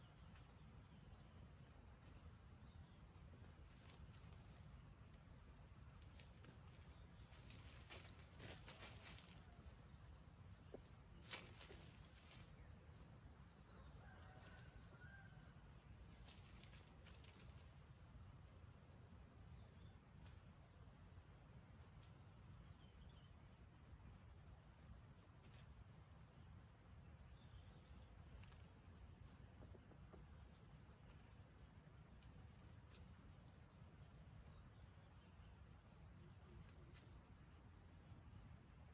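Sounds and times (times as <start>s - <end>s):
high insect tone: 0.0s - 38.9s
rustles in dry leaves: 6.0s - 9.7s, 11.2s - 12.6s.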